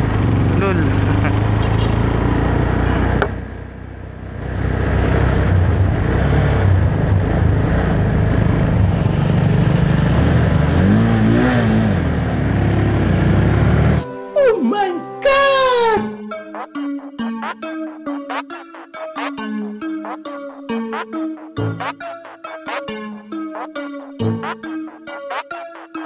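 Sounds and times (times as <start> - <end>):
small motorcycle engine running: 0.0 - 14.0
wind and road noise: 0.0 - 14.0.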